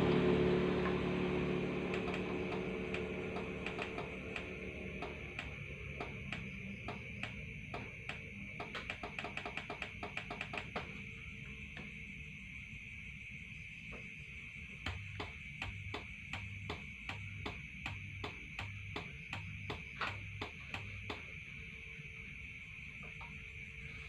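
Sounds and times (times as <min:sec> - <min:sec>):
vehicle engine: 0:00.0 - 0:11.2
insect chirring: 0:01.2 - 0:24.0
wires being handled clicking: 0:01.9 - 0:10.8.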